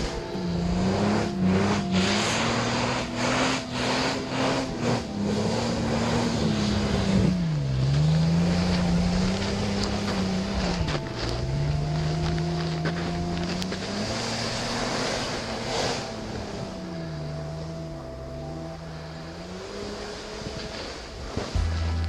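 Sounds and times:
off-road vehicle engine revving: 0.0s - 22.0s.

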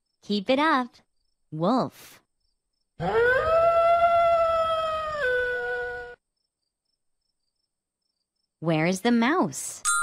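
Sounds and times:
wolf howling: 3.0s - 6.2s.

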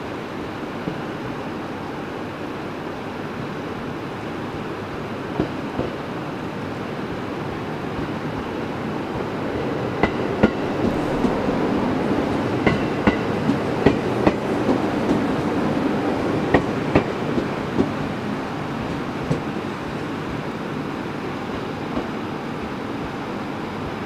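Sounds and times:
train rumbling past: 0.0s - 24.0s
wheels clacking over rail joints: 9.6s - 19.6s.

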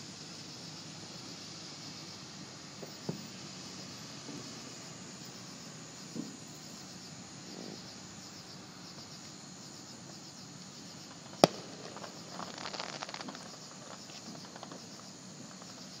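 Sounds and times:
crickets chirping: 0.0s - 16.0s
crackling pops: 11.1s - 15.8s
firework bang: 11.2s - 14.9s.

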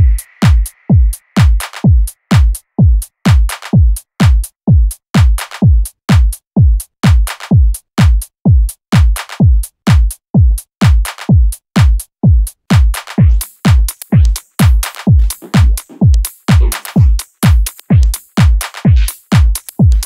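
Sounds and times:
drum machine kick: 0.0s - 20.0s
crisp percussion hits: 13.2s - 20.0s.

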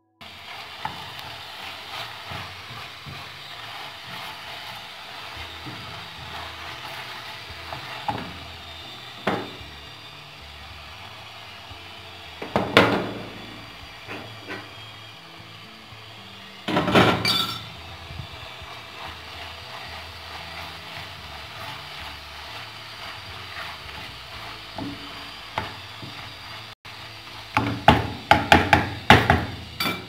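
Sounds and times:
wooden spoon stirring in pot: 0.2s - 29.8s
spoon knocking on pot: 27.6s - 30.0s.

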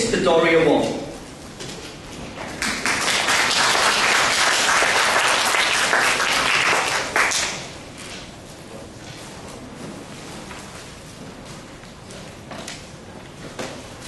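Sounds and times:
audience applauding: 2.5s - 7.8s.

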